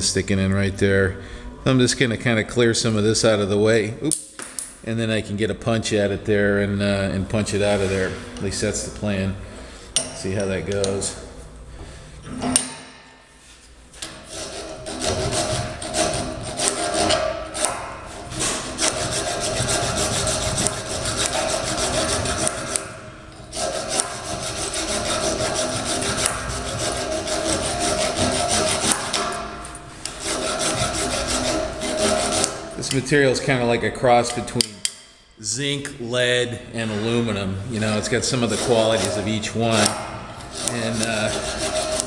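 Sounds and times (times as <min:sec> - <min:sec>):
hand file rasping on metal: 0:14.0 - 0:29.5, 0:30.1 - 0:32.7, 0:37.8 - 0:42.0.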